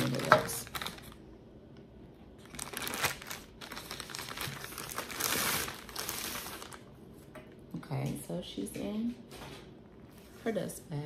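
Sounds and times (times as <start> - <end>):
plastic mailer crinkling: 0.0 - 1.2, 2.4 - 6.9.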